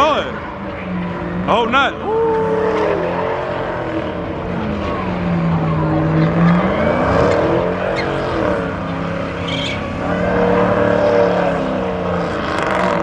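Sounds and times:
car engine revving high: 2.3 - 13.0.

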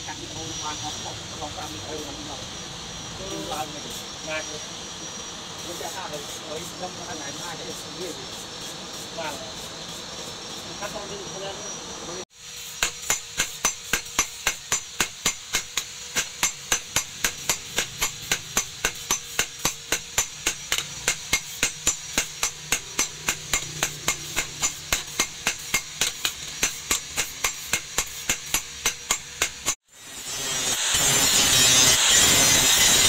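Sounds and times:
hammer striking metal on anvil: 12.6 - 29.8.

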